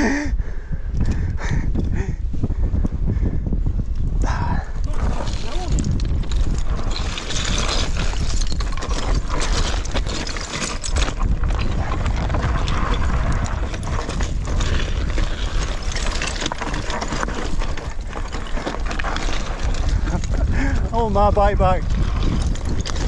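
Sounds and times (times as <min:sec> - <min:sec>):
wind on microphone: 0:00.0 - 0:23.0
bike tyres crunching over shale: 0:04.8 - 0:23.0.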